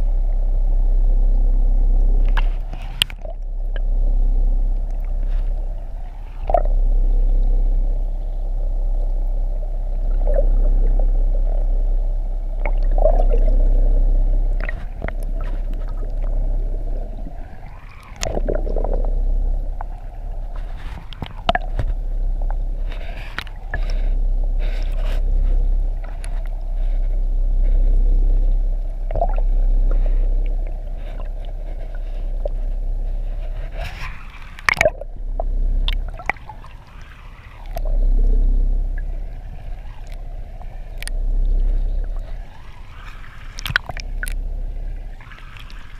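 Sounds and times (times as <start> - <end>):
muffled underwater rumble: 0.0 - 45.9
underwater clicks and knocks: 2.2 - 3.9, 6.4 - 6.7, 12.6 - 25.2, 29.0 - 32.6, 33.4 - 36.5, 43.6 - 44.4.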